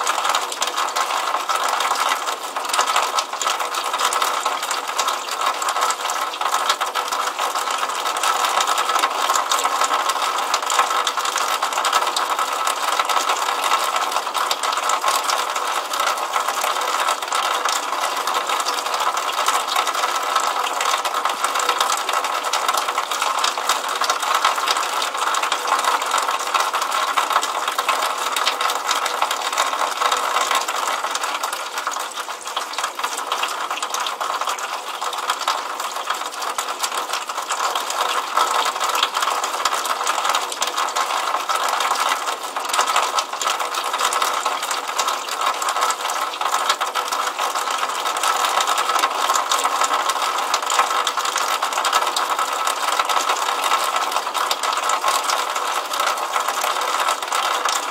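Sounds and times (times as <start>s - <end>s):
rainwater pouring from downspout: 0.0s - 57.9s.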